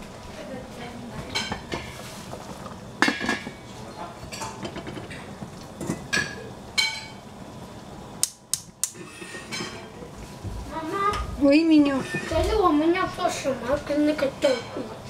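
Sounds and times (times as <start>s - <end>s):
cutlery and dishes clinking: 9.0s - 9.9s.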